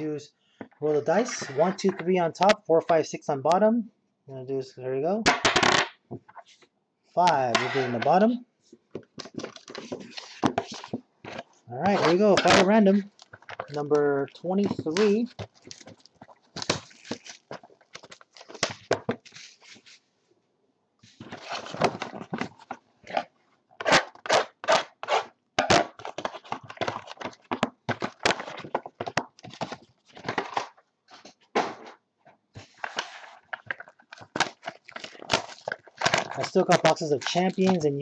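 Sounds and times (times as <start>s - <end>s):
cardboard scraping and rustling: 9.0s - 13.8s, 21.0s - 24.0s, 32.6s - 37.8s.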